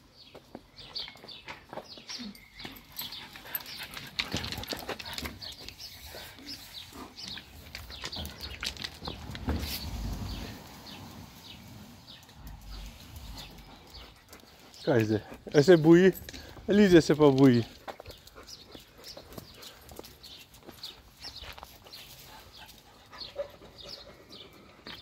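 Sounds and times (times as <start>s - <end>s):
dog walking on river stones: 6.5s - 11.0s.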